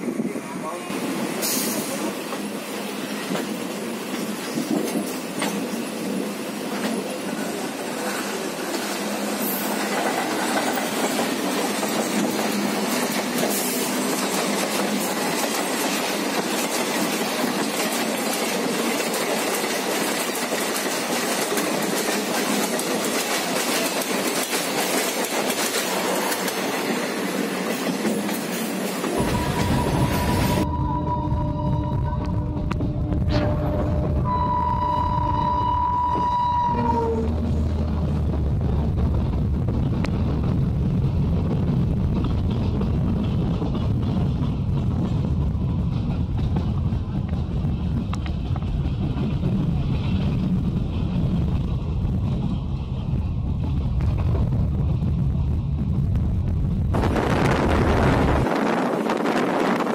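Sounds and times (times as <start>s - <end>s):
train wheels clattering over rail joints: 6.6s - 29.9s, 41.5s - 55.0s
wind rushing: 37.2s - 59.9s.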